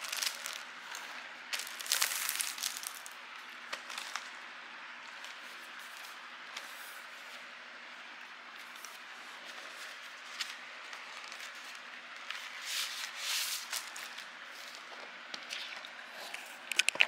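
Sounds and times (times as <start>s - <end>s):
cardboard sleeve rustling and scraping: 8.6s - 16.6s.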